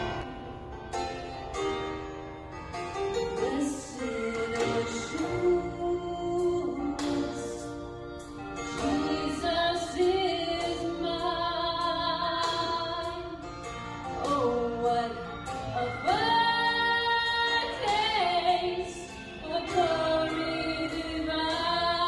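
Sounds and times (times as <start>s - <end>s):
women singing gospel: 3.4s - 7.8s, 8.7s - 13.3s, 14.2s - 22.0s.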